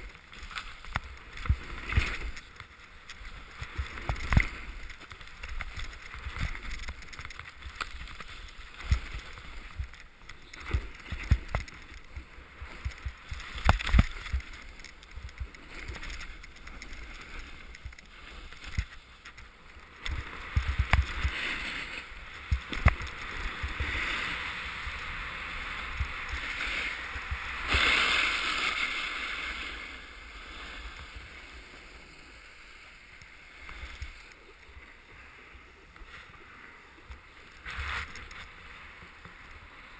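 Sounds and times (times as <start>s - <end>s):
wind buffeting camera: 0.0s - 31.5s
skis scraping over snow: 0.0s - 39.9s.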